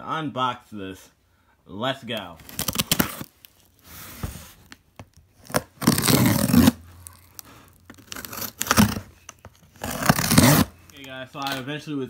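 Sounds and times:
packing tape ripping off cardboard: 2.4s - 11.6s.

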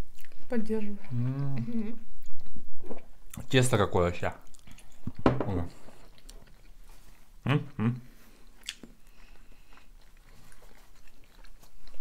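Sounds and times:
chewing mouth sounds: 4.4s - 5.2s, 5.8s - 12.0s.

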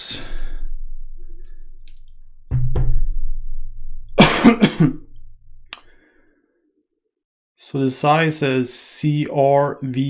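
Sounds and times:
man coughing: 4.2s - 5.1s.

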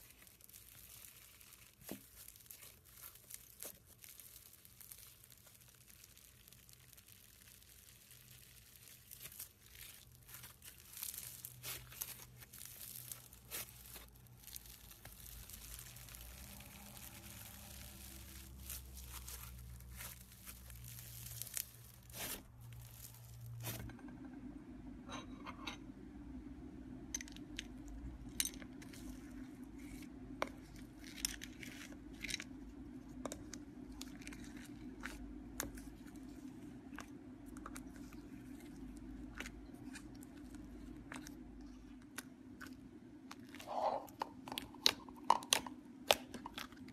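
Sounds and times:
crunchy slime crackling and popping: 0.0s - 23.9s, 27.4s - 46.9s
steady low hum: 8.8s - 46.0s.

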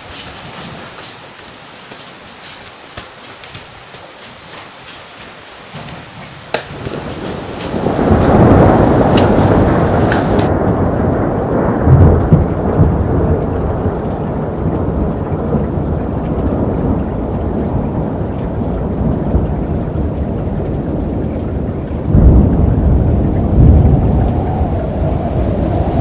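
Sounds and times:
steady rain: 0.0s - 26.0s
loud low thunderclaps: 4.4s - 26.0s
rolling thunder: 5.7s - 26.0s.

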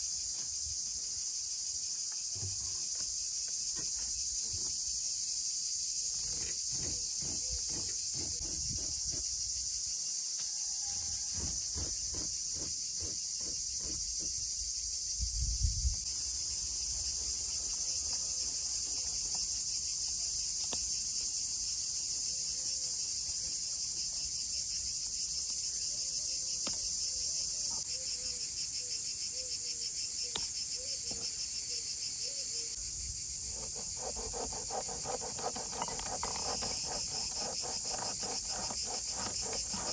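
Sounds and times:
crickets chirping: 0.0s - 39.9s
knife scraping fish: 33.6s - 39.9s.

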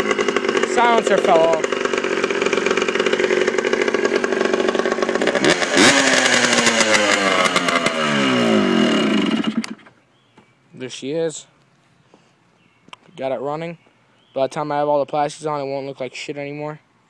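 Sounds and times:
two-stroke engine revving: 0.0s - 10.0s.

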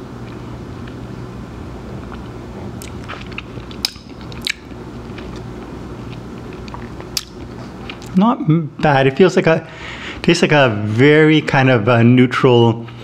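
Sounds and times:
low background hum: 0.0s - 13.0s
wet lip smacks: 2.8s - 5.5s.

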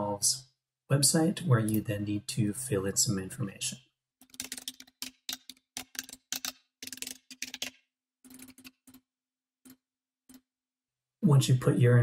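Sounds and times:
keyboard typing clicks: 4.2s - 9.0s.

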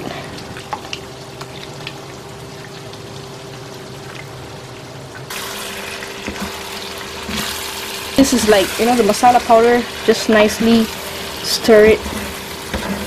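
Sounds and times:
food sizzling in a wok: 5.3s - 13.0s.

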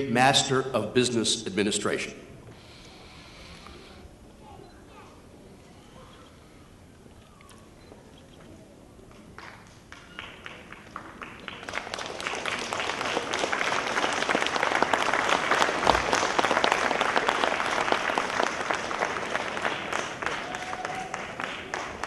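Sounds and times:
audience applause: 9.4s - 22.0s.

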